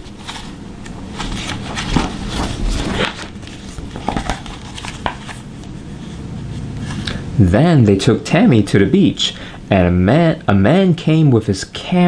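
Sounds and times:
paper pages rustling: 0.0 - 5.8.

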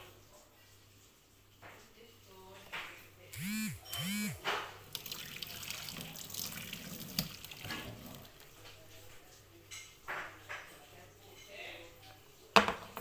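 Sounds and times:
water pouring into a steel sink: 4.8 - 8.4.

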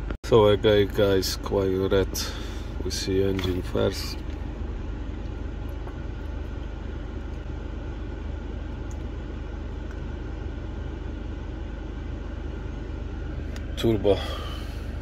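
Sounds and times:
diesel engine idling: 0.3 - 15.0.

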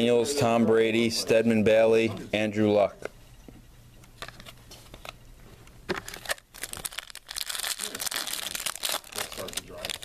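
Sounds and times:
foil wrapper crinkling: 6.0 - 10.0.

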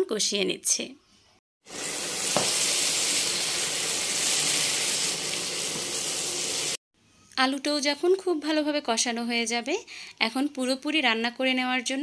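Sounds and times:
food sizzling in frying pan: 1.7 - 6.8.

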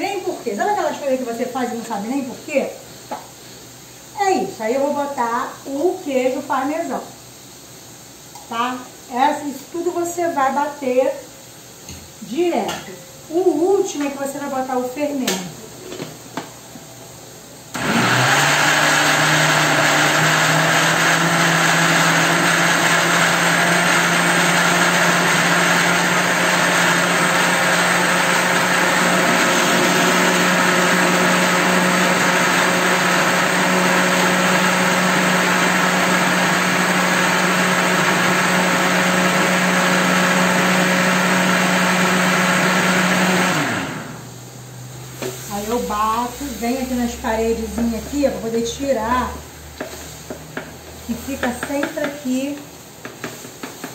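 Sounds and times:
electric blender running: 17.8 - 44.3.

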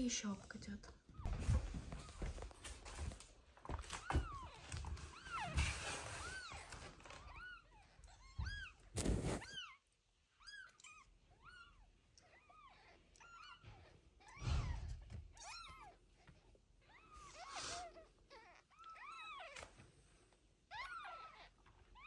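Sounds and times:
rustling thumps on felt bed: 8.4 - 9.5
kittens mewing: 16.8 - 19.7.

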